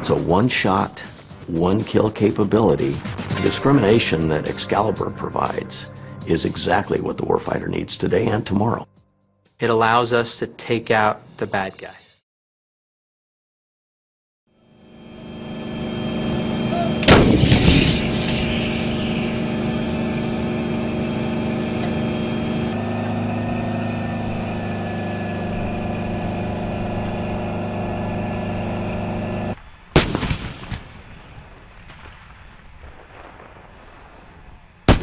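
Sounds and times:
engine hum: 14.5 - 29.6
rolling echoes: 15.2 - 35.0
cannon shot: 16.7 - 21.1, 29.9 - 34.0.

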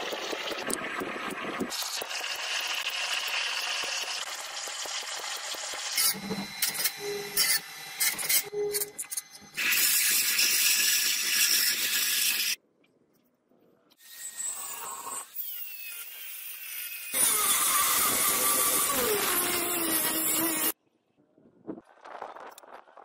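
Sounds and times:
angle grinder grinding blade: 1.8 - 12.6, 14.0 - 20.8
surface grinder wheel on blade: 17.2 - 20.8.

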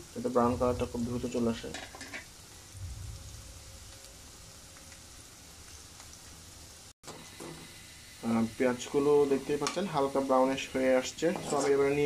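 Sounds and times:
onions sizzling in hot oil: 0.0 - 12.0
small crackles: 3.7 - 6.6.

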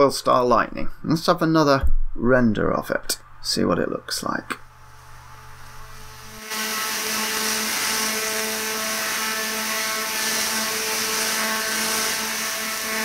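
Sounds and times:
tesla coil buzzing and crackling: 4.6 - 13.0.

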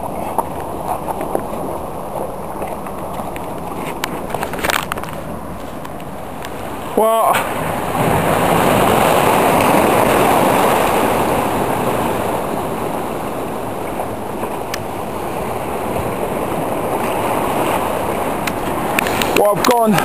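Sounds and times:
surf breaking over rocks: 0.0 - 20.0.

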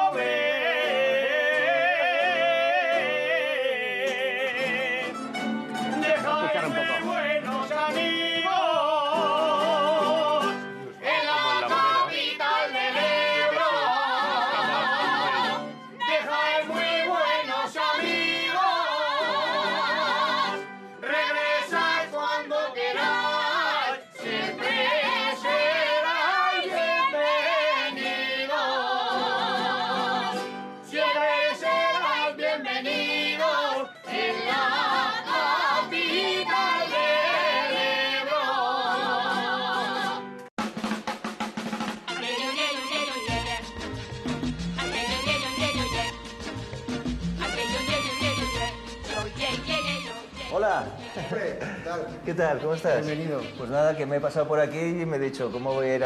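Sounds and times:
woman singing with vibrato: 11.0 - 40.4, 47.4 - 50.3.

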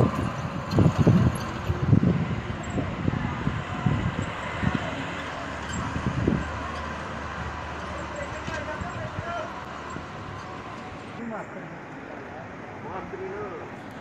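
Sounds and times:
vehicle driving on gravel: 0.0 - 11.2.

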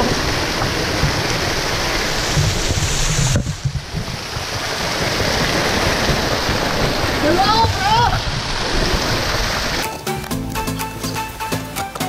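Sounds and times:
waterfall splashing onto rock: 0.0 - 10.6.

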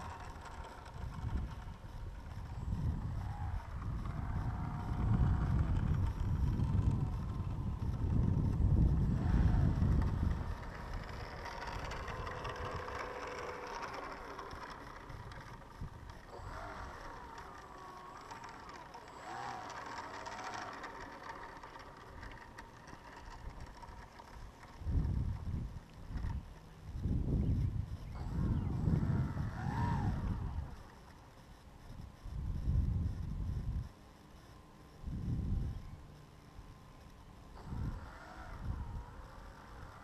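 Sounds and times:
wavering whistle-like tones: 0.0 - 24.3, 27.4 - 32.7
wind buffeting microphone: 0.0 - 31.2, 31.9 - 34.0, 35.0 - 36.1, 37.5 - 40.0.

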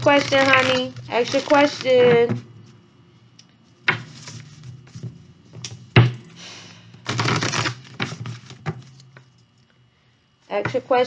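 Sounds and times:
cards riffling: 0.0 - 2.2, 7.0 - 9.6
cards being shuffled: 0.0 - 2.4, 3.9 - 6.0, 7.0 - 9.6
cards tapping and flicking: 0.0 - 2.4, 7.0 - 9.3.

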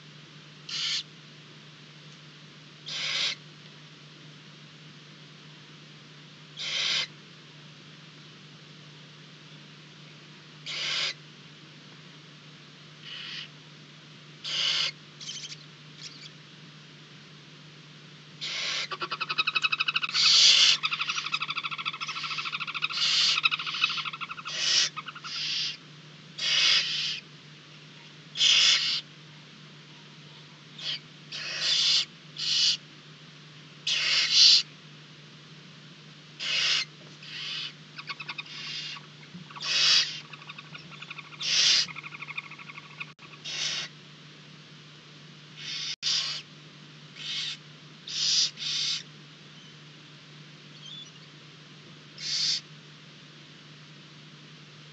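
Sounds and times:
low electrical hum: 0.0 - 54.9
owl nestlings hissing: 0.7 - 1.1, 2.8 - 3.4, 6.6 - 7.1, 10.6 - 11.2, 13.0 - 13.5, 14.4 - 16.3, 18.4 - 25.8, 26.4 - 27.3, 28.4 - 29.1, 30.8 - 32.8, 33.8 - 34.7, 36.4 - 44.0, 45.6 - 46.5, 47.2 - 49.1, 52.2 - 52.7.

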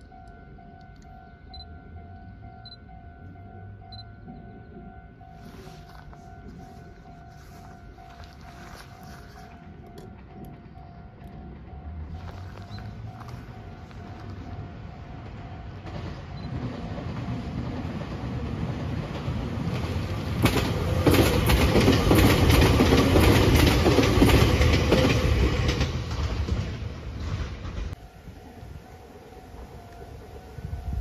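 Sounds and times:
electric train passing: 0.0 - 31.0
wheels clicking over rail joints: 15.2 - 28.1.

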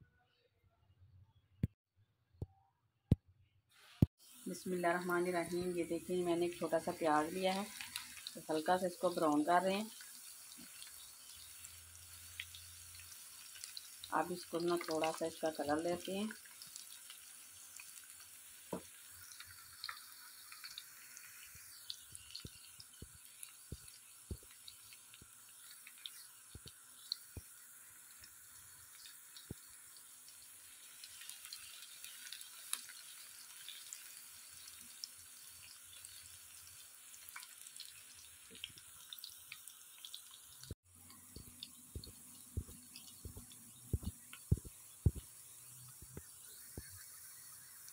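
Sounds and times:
onions sizzling in oil: 4.0 - 47.9.

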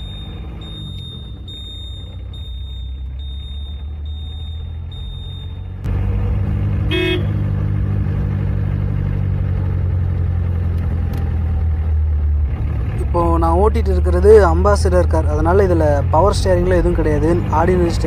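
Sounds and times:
faint high beep: 0.0 - 5.8
car engine running: 0.0 - 18.0
car horn toot: 6.8 - 7.4.

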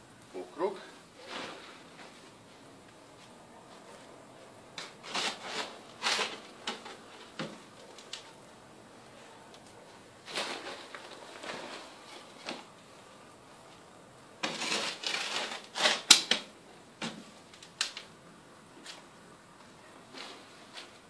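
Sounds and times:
spade scraping into soil: 1.1 - 2.3, 4.8 - 7.4, 10.2 - 12.6, 14.4 - 16.1, 20.1 - 21.0.

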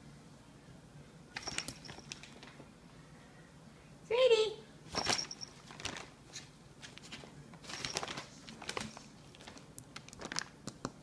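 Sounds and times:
plastic bag crinkling: 5.0 - 6.2, 7.1 - 10.5.

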